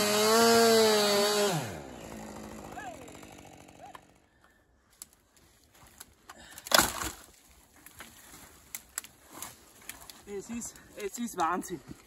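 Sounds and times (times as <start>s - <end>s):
wood and branches snapping: 4.9s - 12.0s.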